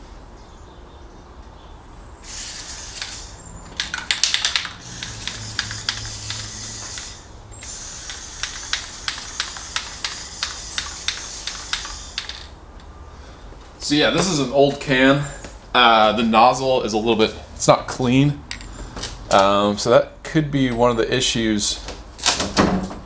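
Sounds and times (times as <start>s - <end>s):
spray paint hissing: 2.2s - 12.6s
trigger handle clicks: 3.0s - 12.9s.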